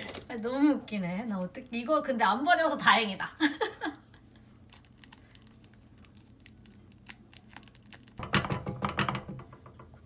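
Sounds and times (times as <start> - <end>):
plastic sachet crinkling: 4.6 - 8.2.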